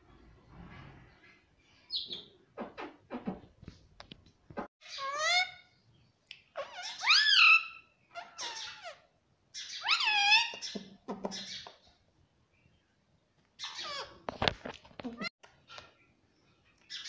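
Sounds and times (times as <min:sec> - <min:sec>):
parakeet squawking: 0:04.8 - 0:05.7, 0:06.5 - 0:11.6, 0:13.6 - 0:14.2.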